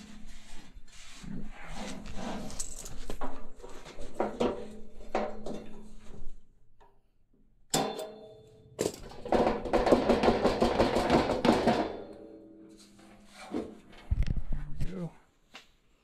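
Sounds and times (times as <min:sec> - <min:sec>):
sharp metallic clank: 0:07.7 - 0:09.0
knocks and clicks on sheet metal: 0:07.7 - 0:12.3.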